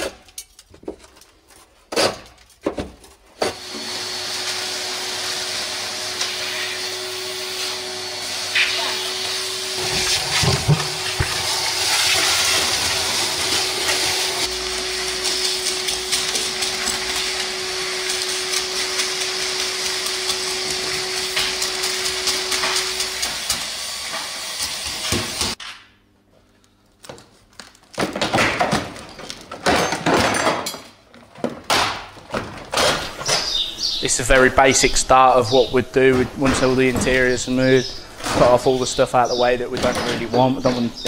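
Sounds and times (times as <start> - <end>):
vacuum cleaner running: 3.4 - 25.6, 32.8 - 41.0.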